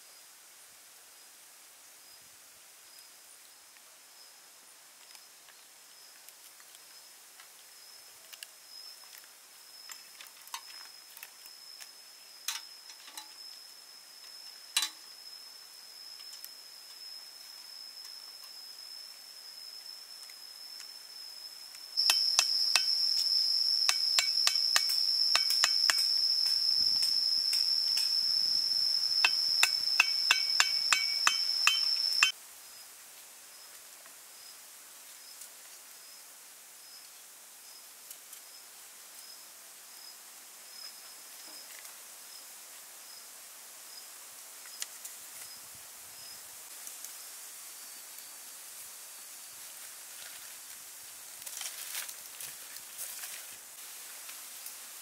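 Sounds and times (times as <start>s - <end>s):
insect high-pitched trill: 5.1s - 32.9s
faint high chirp: 7.7s - 32.4s.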